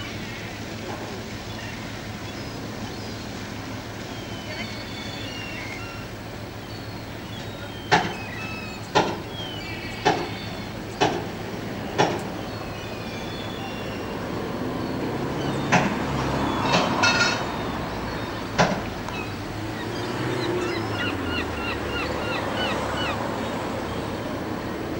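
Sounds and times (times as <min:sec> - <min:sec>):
sharp knocks: 0:08.9 - 0:09.3, 0:11.0 - 0:12.4.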